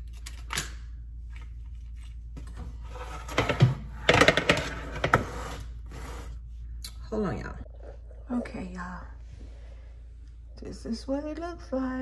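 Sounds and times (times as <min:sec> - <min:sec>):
objects knocking and clattering: 0:02.4 - 0:05.2.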